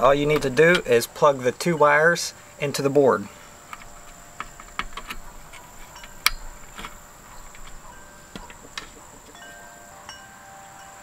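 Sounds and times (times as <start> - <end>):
faint ringing tones: 0.0 - 11.0
cable connectors clicking: 3.7 - 9.0.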